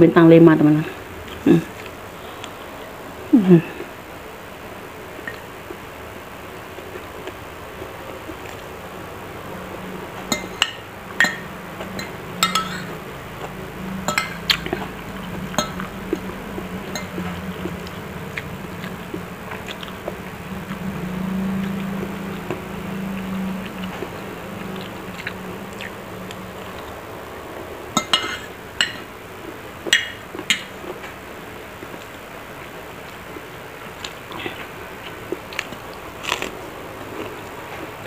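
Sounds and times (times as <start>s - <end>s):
steady low hum: 0.0s - 38.0s
cutlery clinking on a plate: 10.3s - 13.0s
chewing: 11.2s - 20.9s, 21.5s - 27.0s, 34.0s - 38.0s.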